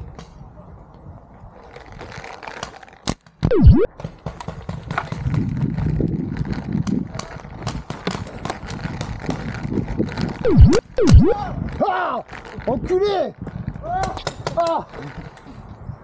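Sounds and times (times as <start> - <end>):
swooping sound: 3.5 - 3.9, 10.5 - 11.4
clopping knocks and rattling: 4.0 - 5.9, 6.8 - 10.3.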